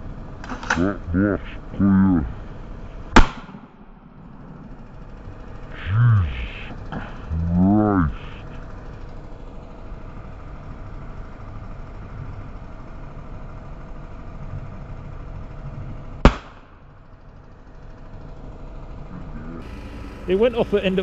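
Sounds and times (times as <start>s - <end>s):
background hum: 0.0s - 21.0s
launcher firing bang: 3.2s - 3.7s, 16.2s - 16.7s.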